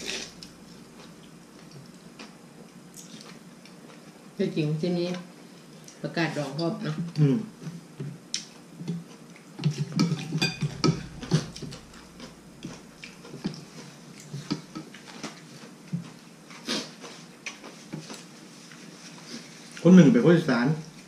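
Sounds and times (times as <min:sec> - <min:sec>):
people slurping and chewing: 0:00.0 - 0:02.3, 0:08.4 - 0:19.8.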